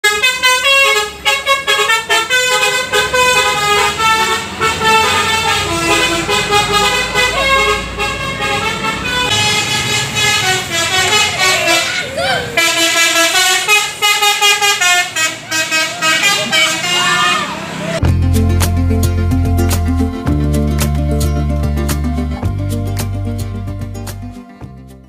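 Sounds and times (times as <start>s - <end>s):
bus horns playing melody: 0.0s - 18.0s
bus engines rumbling: 0.0s - 24.8s.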